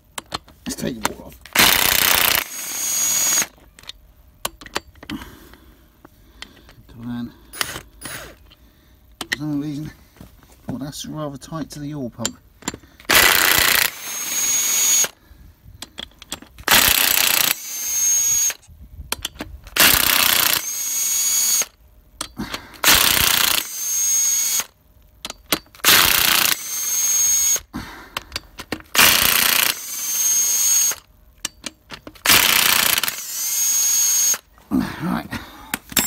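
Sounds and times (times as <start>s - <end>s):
impact wrench bursts: 1.0s - 3.9s, 7.5s - 8.5s, 12.2s - 15.2s, 15.8s - 18.6s, 19.2s - 34.5s.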